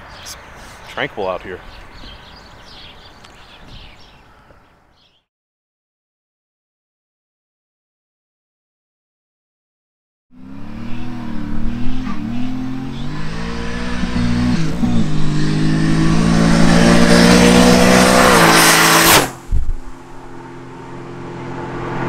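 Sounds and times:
car engine accelerating hard: 10.3 - 22.0.

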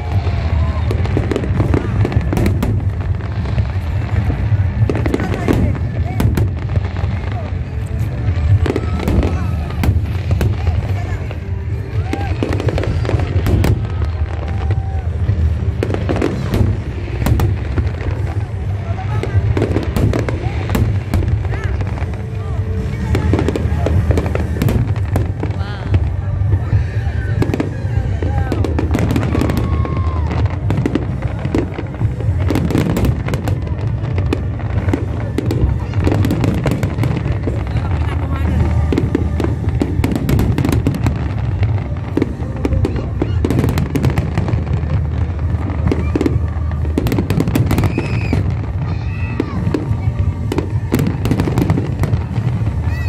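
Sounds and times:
fireworks bangs and crackles: 0.0 - 53.0
low rumble: 0.0 - 53.0
music playing: 0.0 - 53.0
firework whistle: 39.4 - 53.0.

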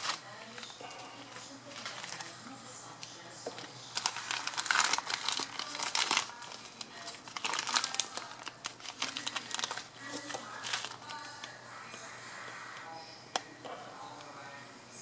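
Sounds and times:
plastic bag crinkling and tearing: 1.7 - 2.3, 3.6 - 11.5.

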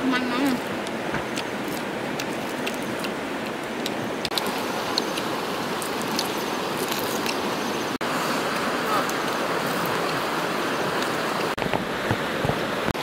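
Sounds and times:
steady outdoor hiss: 0.0 - 13.0
crunching chewing: 0.4 - 7.4.

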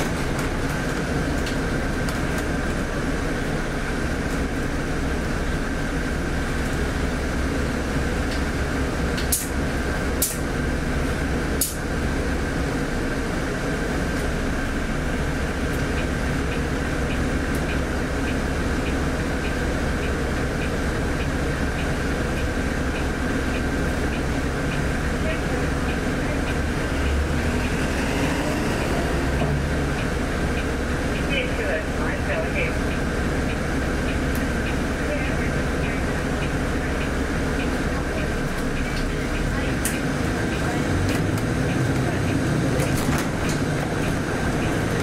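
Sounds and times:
bus engine hum inside cabin: 0.0 - 45.0
regular ticking: 15.6 - 27.9, 28.7 - 45.0.

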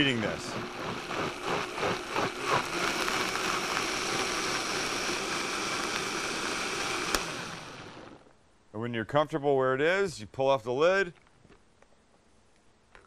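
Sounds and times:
blender motor whirring: 0.0 - 8.3.

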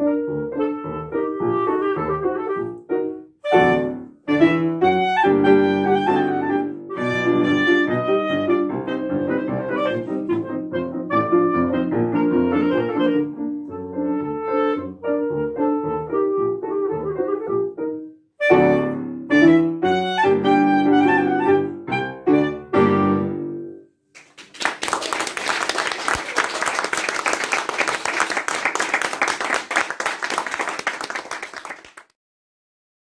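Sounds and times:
clarinet and piano playing: 0.0 - 23.8
audience applause: 24.2 - 32.1.

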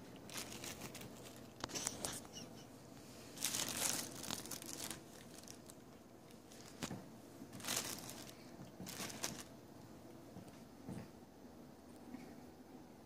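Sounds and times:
bubble wrap crinkling: 0.0 - 2.4, 3.3 - 9.6.

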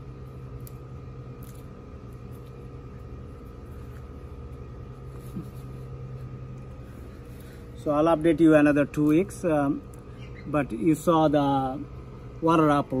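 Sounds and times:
low machine hum: 0.0 - 13.0.

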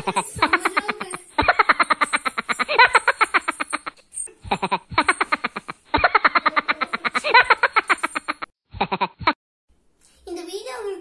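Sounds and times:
rapid pulsing laughter: 0.0 - 9.3.

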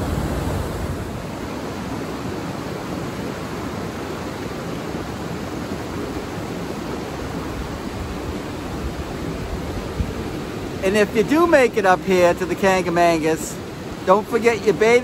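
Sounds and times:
river rushing over boulders: 0.0 - 15.0.

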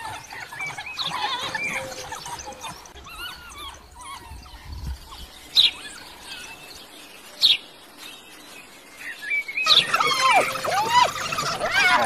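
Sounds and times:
wild dogs twittering: 0.0 - 6.8, 9.6 - 12.0.

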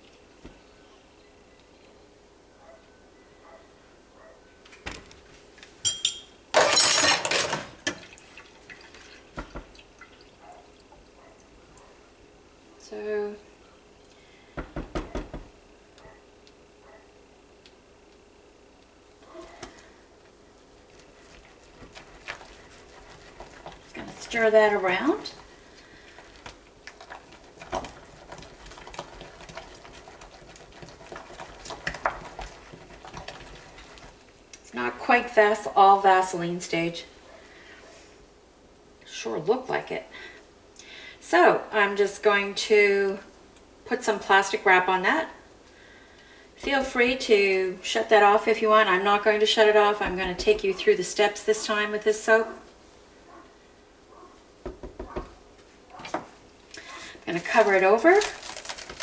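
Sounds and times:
utensils clinking and knocking: 5.9 - 7.8
spatula stirring thick soap paste: 20.8 - 34.3.

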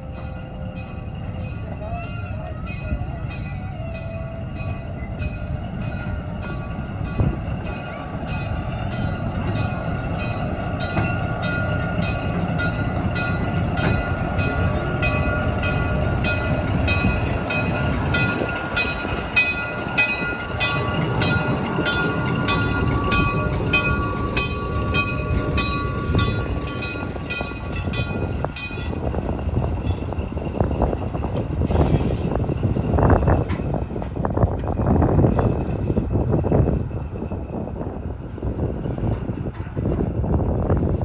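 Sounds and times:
low train rumble: 0.0 - 41.0
train wheels clicking over rail joints: 6.3 - 36.5.

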